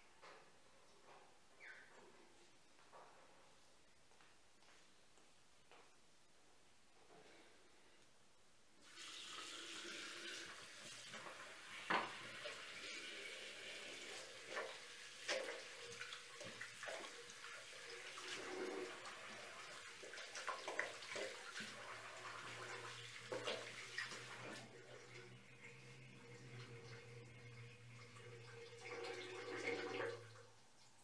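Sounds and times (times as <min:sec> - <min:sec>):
tap water running into basin: 0:08.8 - 0:30.5.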